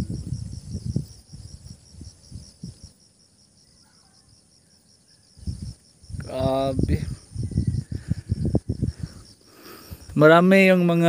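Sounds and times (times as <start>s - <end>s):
low rumbles on microphone: 0.0s - 2.9s, 5.4s - 9.3s
insects trilling: 0.0s - 11.0s.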